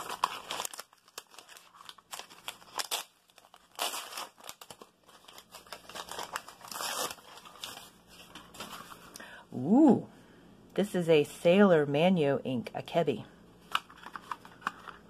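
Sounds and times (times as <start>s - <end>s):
plastic wrapping crinkling and tearing: 0.0s - 9.1s.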